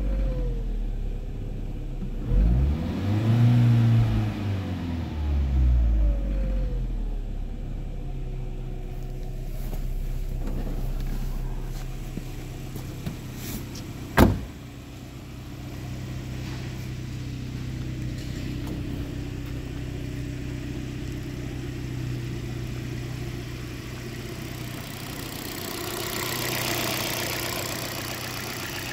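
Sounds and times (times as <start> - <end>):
car engine idling: 0.0 - 2.6, 3.6 - 28.9
car door shutting: 10.4 - 14.7, 18.0 - 19.6.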